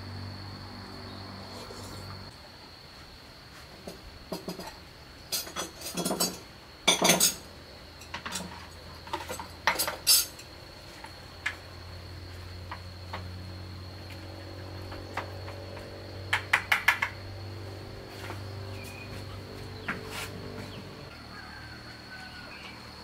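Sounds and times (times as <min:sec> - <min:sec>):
high insect drone: 0:00.0 - 0:23.0
tableware clinking on wooden table: 0:05.4 - 0:07.4.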